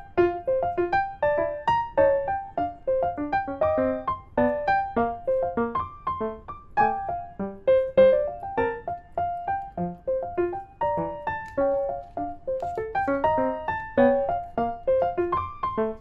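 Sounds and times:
light piano melody: 0:00.0 - 0:16.0.

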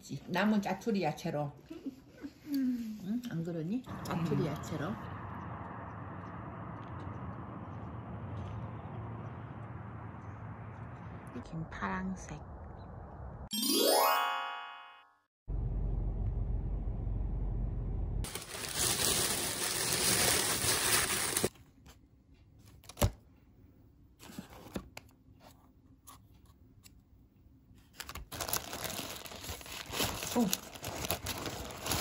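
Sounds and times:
low rumble: 0:03.8 - 0:13.5, 0:15.5 - 0:19.8
paper wrapper crinkling: 0:18.3 - 0:21.6, 0:27.8 - 0:32.0
paper rustling: 0:18.3 - 0:22.0, 0:27.8 - 0:32.0.

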